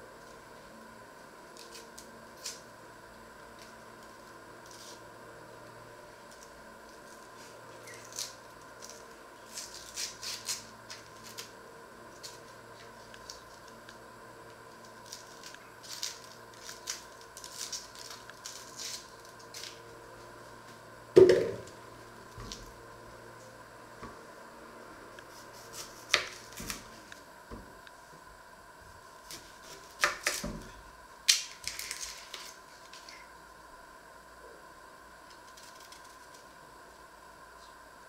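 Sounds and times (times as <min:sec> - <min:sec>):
onion skins crackling: 0:01.5 - 0:20.3, 0:29.2 - 0:33.4, 0:35.3 - 0:36.6.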